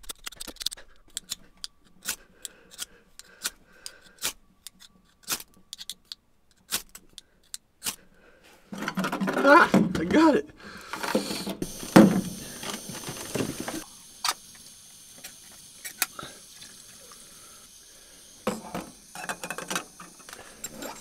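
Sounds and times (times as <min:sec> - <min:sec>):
metal pot and utensils clattering: 0:08.7 - 0:10.2, 0:18.5 - 0:21.0
gas stove hissing: 0:08.8 - 0:21.0.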